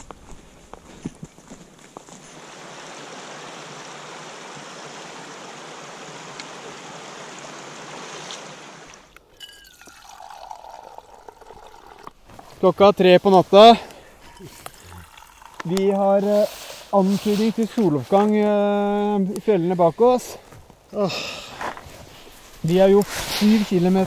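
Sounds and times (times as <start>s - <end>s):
stream water rushing: 2.3s - 12.3s
hot drink poured into mug: 9.2s - 12.5s, 14.2s - 15.7s.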